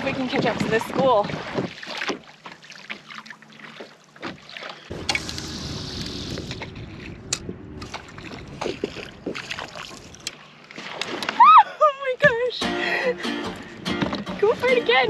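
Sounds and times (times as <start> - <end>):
water sloshing around kayak: 0.0 - 15.0
wind buffeting microphone: 4.9 - 10.3.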